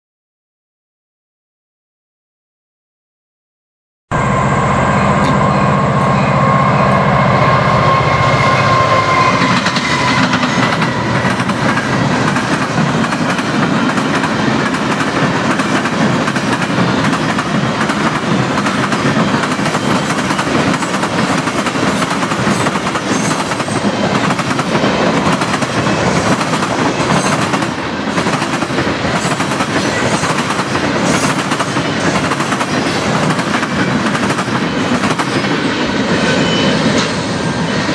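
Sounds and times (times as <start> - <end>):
high steady tone: 4.1 - 12.1
locomotive engine hum: 4.1 - 13.1
train wheels clattering over track: 5.2 - 37.9.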